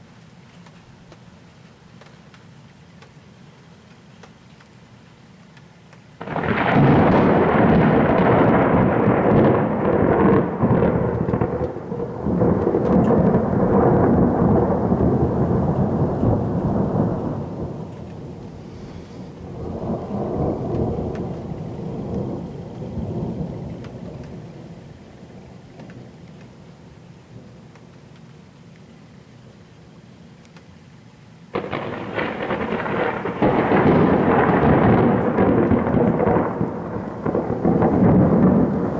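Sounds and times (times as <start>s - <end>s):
thunder crack and rumble: 6.2s - 28.1s, 31.5s - 38.9s.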